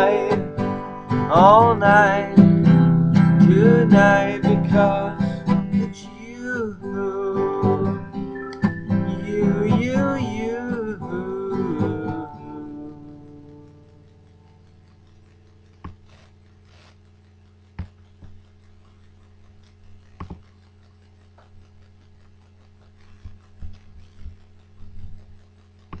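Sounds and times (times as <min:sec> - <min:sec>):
guitar chord: 0:00.0 - 0:15.2
low steady hum: 0:00.0 - 0:26.0.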